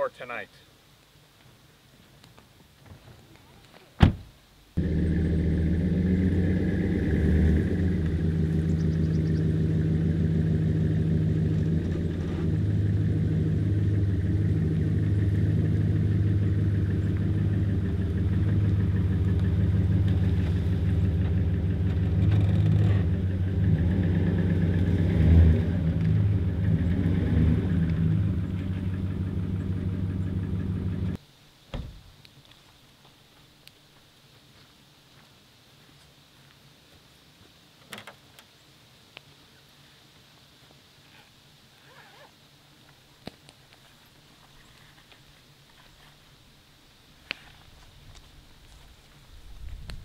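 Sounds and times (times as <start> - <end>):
low thump: 4.0 - 4.3, 31.7 - 32.0
truck engine running at low revs: 4.8 - 31.2.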